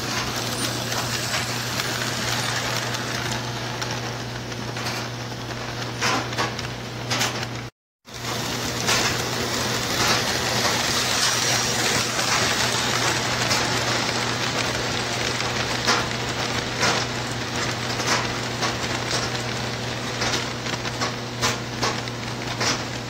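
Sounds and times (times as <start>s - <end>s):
model train rattling on rails: 0.0s - 5.0s, 8.1s - 22.9s.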